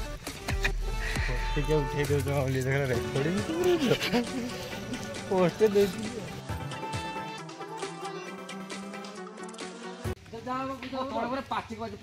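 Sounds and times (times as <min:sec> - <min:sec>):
background music with beat: 0:00.0 - 0:10.2.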